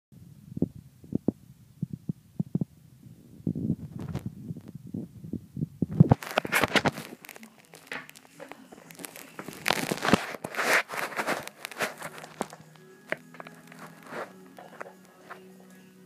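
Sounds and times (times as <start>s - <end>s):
ferret crunching bone: 6.1s - 15.5s.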